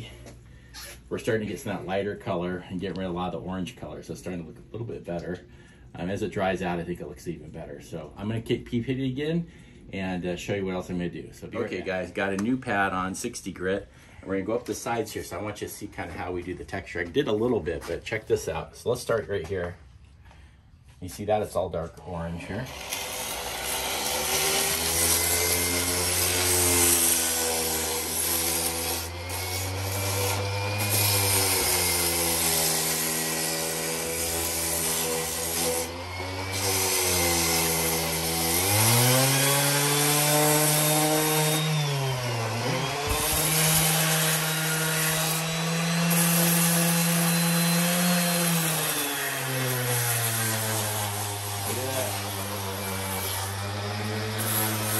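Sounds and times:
electric sander on concrete: 0:22.4 - 0:54.9.

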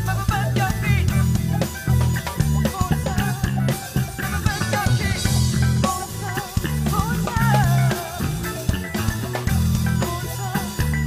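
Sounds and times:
drum kit beat: 0:00.0 - 0:11.0
electric guitar: 0:00.0 - 0:11.0
woman singing: 0:02.6 - 0:08.7, 0:10.0 - 0:11.0.

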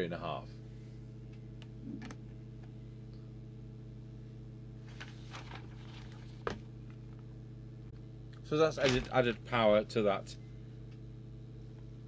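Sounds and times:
low electrical hum: 0:00.0 - 0:12.0
small handling sounds: 0:04.8 - 0:07.2.

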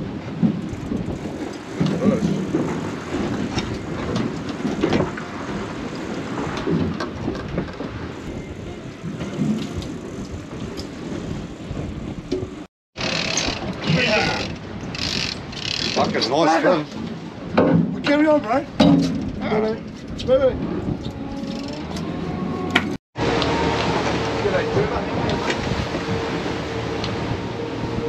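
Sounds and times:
wind buffeting the microphone: 0:00.0 - 0:12.7, 0:13.4 - 0:28.0
water rushing along a hull: 0:00.0 - 0:28.0
outboard motor running: 0:23.2 - 0:27.9.

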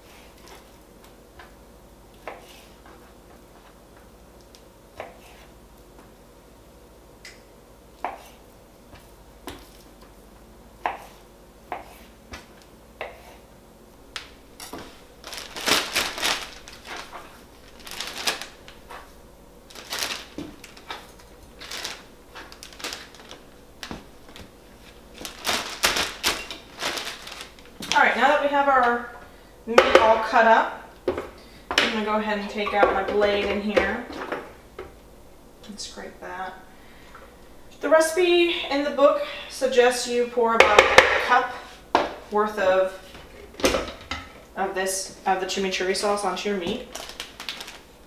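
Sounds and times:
plastic bag crinkling: 0:14.2 - 0:28.4, 0:46.8 - 0:48.0.

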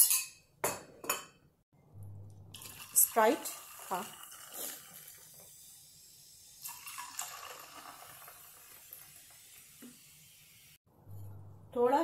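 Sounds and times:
soda pouring and fizzing: 0:02.5 - 0:10.8.

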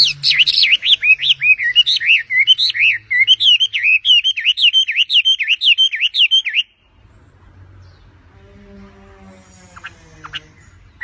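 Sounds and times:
bird singing whistled notes: 0:00.0 - 0:06.9.

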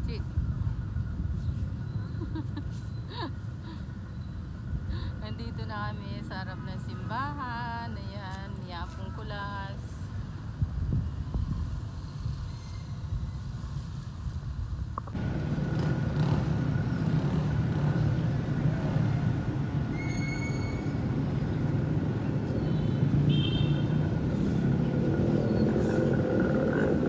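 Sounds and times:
street noise: 0:00.0 - 0:27.0
vehicle engine rumbling: 0:14.2 - 0:27.0.

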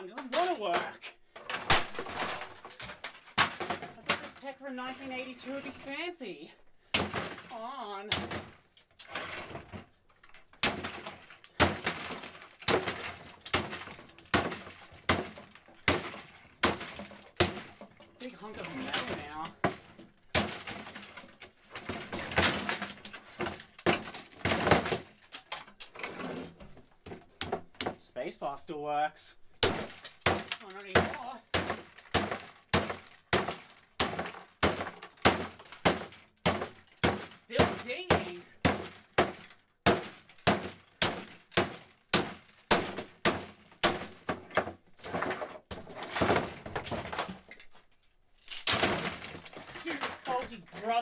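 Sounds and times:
loose metal parts rattling: 0:08.3 - 0:27.9, 0:43.6 - 0:51.0.

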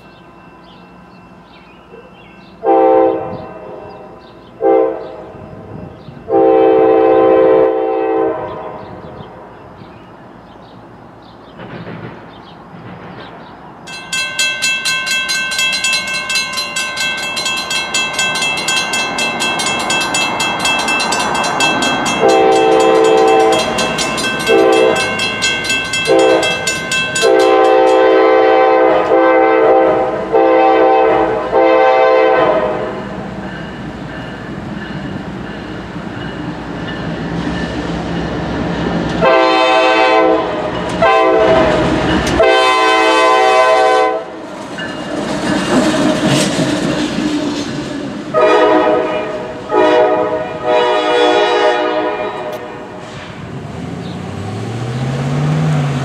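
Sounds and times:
crossing bells ringing: 0:00.0 - 0:07.0, 0:13.8 - 0:29.6, 0:30.4 - 0:46.0
train rumble: 0:00.0 - 0:56.0
locomotive air horn blasts: 0:02.6 - 0:05.4, 0:06.3 - 0:09.0, 0:22.2 - 0:25.2, 0:26.1 - 0:26.6, 0:27.2 - 0:33.0, 0:39.2 - 0:41.8, 0:42.4 - 0:44.4, 0:48.3 - 0:53.1.

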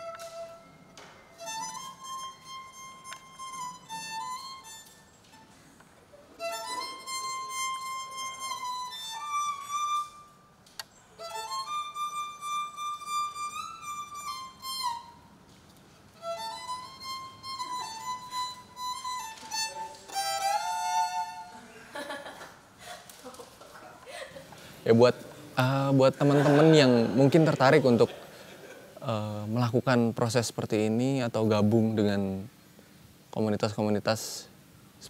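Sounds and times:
solo violin playing: 0:00.0 - 0:05.0, 0:06.3 - 0:10.4, 0:11.2 - 0:15.4, 0:16.2 - 0:21.6.

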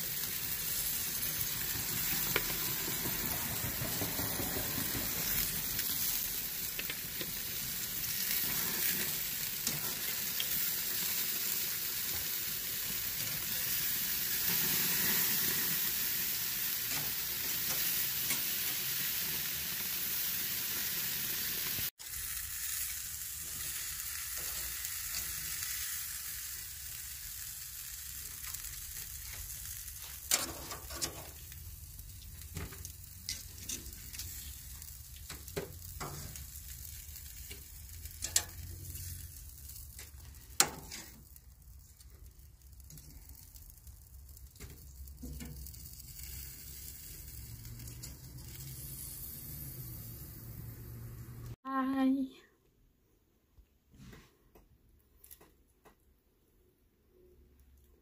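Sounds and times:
seafood sizzling on grill: 0:00.0 - 0:51.6
metal tongs clicking on grate: 0:38.2 - 0:38.6.

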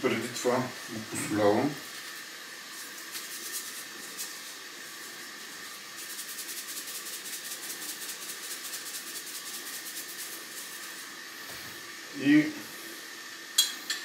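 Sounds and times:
background hiss: 0:00.0 - 0:14.0
salt shaker rattling: 0:01.8 - 0:11.0.

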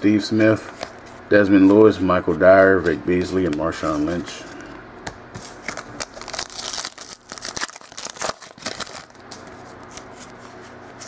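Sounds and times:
foil pack crinkling and tearing: 0:05.6 - 0:10.4.

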